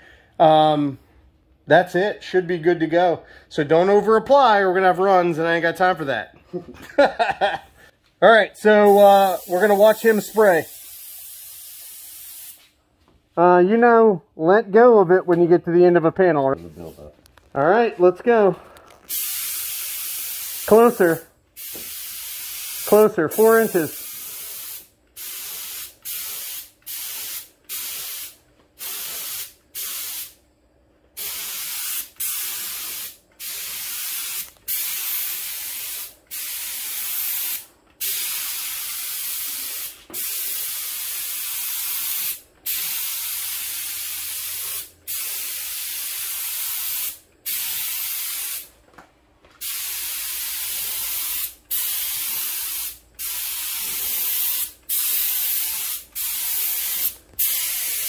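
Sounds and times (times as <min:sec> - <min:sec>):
spray gun hissing: 0:08.8 - 0:12.7, 0:19.1 - 0:30.4, 0:31.2 - 0:48.7, 0:49.6 - 0:58.0.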